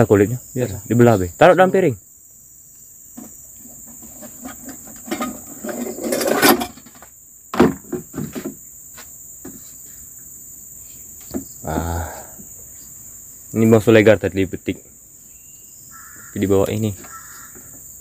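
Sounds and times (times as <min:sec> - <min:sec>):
high-pitched insect chorus: 0:00.0 - 0:18.0
scraping and rustling handling: 0:03.2 - 0:07.0.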